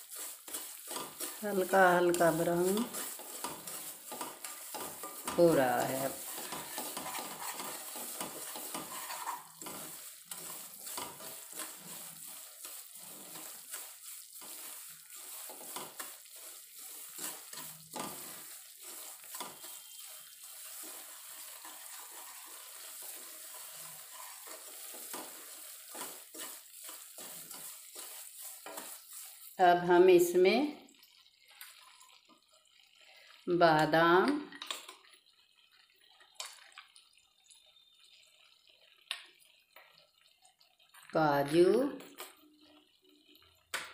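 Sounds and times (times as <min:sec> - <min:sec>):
spatula scraping metal pan: 0:00.0 - 0:29.6
light sizzle: 0:00.0 - 0:43.9.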